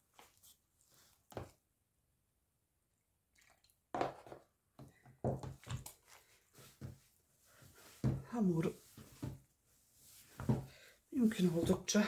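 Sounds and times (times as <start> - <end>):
hand squeezing wet dough: 3.3 - 3.8.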